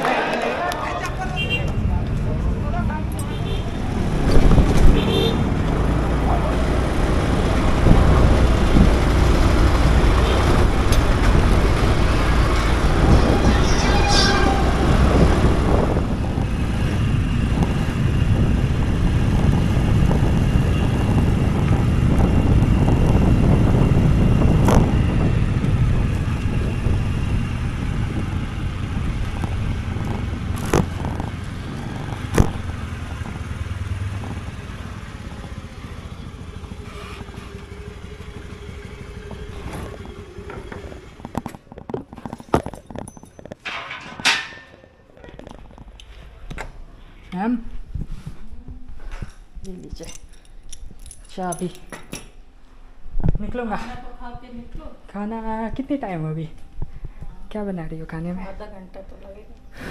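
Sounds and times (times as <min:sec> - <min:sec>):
wind and road noise: 0:00.0 - 0:59.9
scooter engine running: 0:03.8 - 0:41.8.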